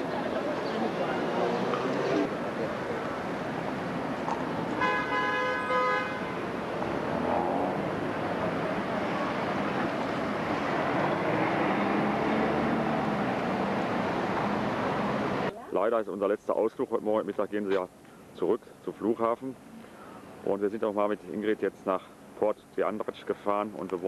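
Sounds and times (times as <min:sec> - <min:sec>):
cars driving by: 0:00.0 - 0:15.5
car horn: 0:04.8 - 0:06.4.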